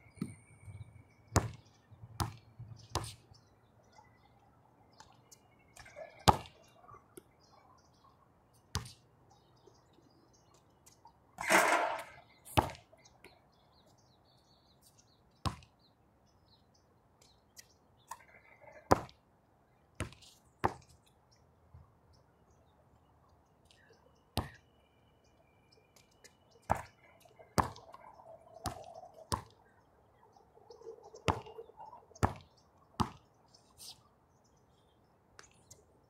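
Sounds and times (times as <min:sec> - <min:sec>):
basketball bouncing on hard court: 0:01.4 - 0:01.6, 0:27.6 - 0:27.8, 0:33.0 - 0:33.2.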